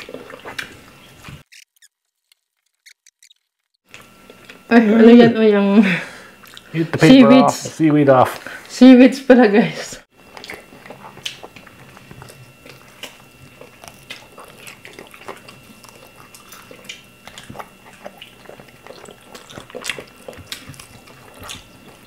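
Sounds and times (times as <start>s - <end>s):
people chewing: 0.0s - 1.5s, 3.8s - 5.2s, 5.9s - 7.0s, 10.2s - 22.0s
gnawing on chicken wing: 10.3s - 22.0s.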